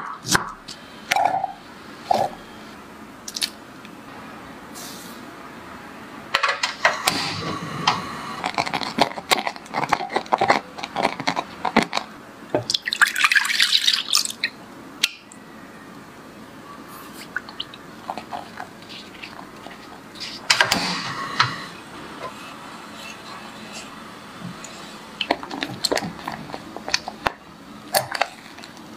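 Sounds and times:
spatula stirring wet fruit: 0:17.1 - 0:20.5, 0:22.2 - 0:28.9.

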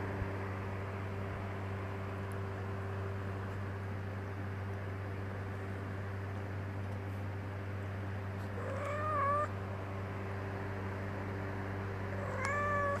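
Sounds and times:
steady low hum: 0:00.0 - 0:13.0
cat meowing: 0:08.6 - 0:09.5, 0:12.2 - 0:13.0.

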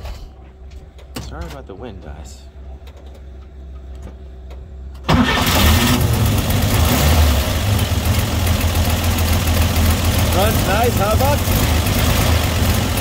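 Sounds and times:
car engine starting and idling: 0:04.5 - 0:13.0.

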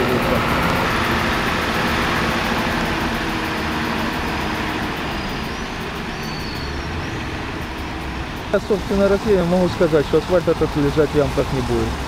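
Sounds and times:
street traffic: 0:00.0 - 0:12.0
tractor diesel engine running: 0:00.0 - 0:12.0.

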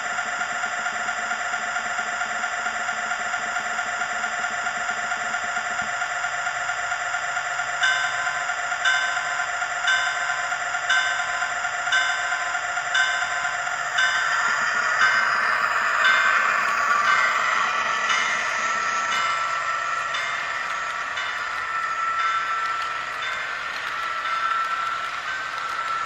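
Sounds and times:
model locomotive diesel idling: 0:00.0 - 0:26.0
locomotive bell ringing: 0:07.7 - 0:26.0.

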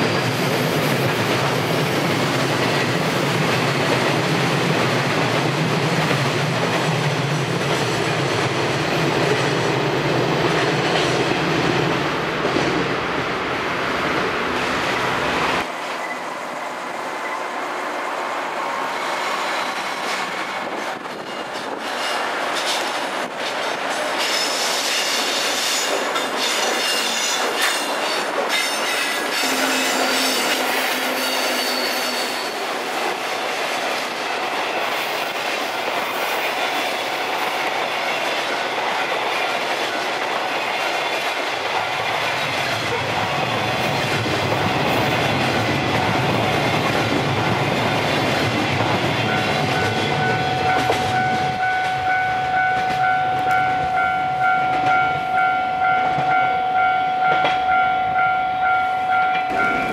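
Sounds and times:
high wheel squeal: 0:24.2 - 0:32.8
deep train rumble: 0:29.2 - 0:59.9.

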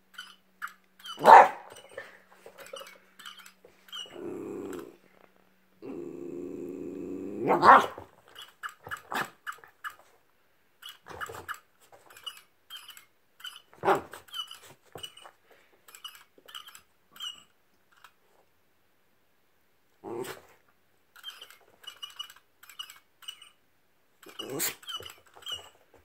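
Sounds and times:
small dog barking and growling: 0:01.1 - 0:02.1, 0:03.9 - 0:05.0, 0:05.8 - 0:08.2, 0:08.8 - 0:09.7, 0:13.7 - 0:14.3, 0:20.0 - 0:20.6, 0:24.2 - 0:25.0.

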